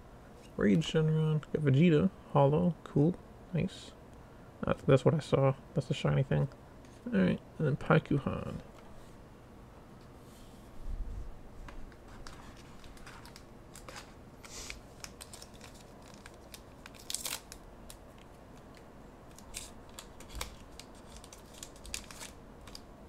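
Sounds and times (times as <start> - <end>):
cards clicking and rustling: 11.9 - 22.9
foil wrapper crinkling and tearing: 12.2 - 22.9.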